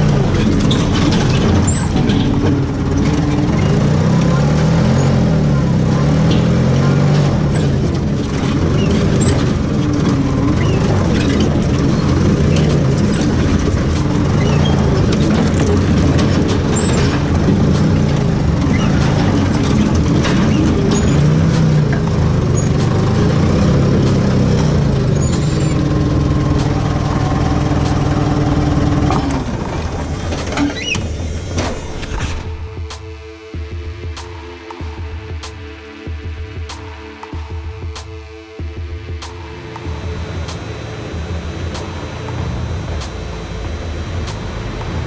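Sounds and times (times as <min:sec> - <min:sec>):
forklift engine revving: 0:00.0 - 0:16.9, 0:39.4 - 0:45.0.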